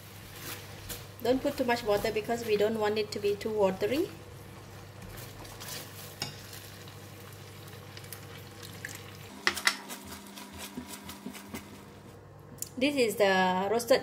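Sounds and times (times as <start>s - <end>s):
sauce sizzling: 0.0s - 12.0s
spatula scraping sauce in pan: 9.4s - 11.9s.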